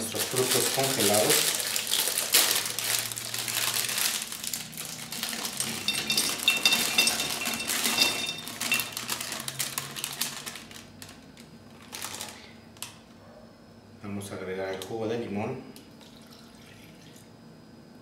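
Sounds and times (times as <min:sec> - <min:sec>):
frozen berries clattering into glass: 0:00.0 - 0:11.2.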